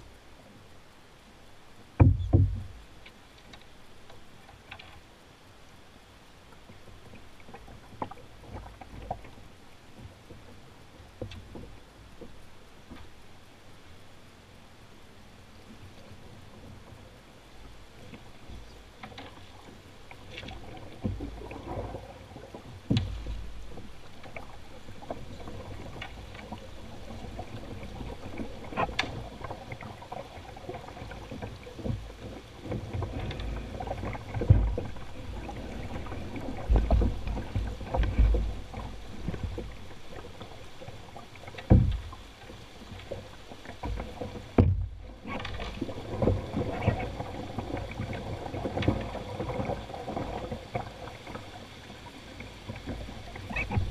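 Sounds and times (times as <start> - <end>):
rushing river water: 0.0 - 53.9
low thumps: 2.0 - 2.8.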